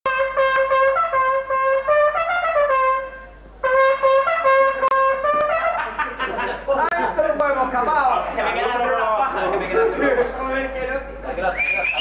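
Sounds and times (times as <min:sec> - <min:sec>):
brass horn short notes: 0:00.1 - 0:05.8.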